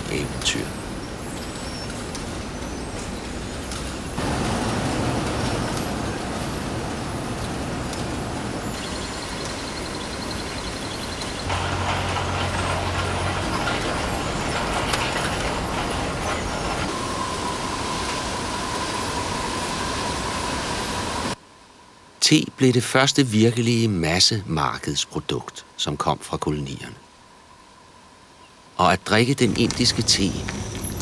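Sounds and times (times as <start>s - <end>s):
machinery din: 11.1s - 18.7s.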